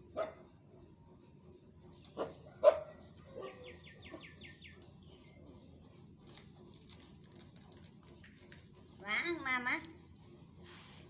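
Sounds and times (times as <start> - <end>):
bird chirps: 1.9 - 5.6.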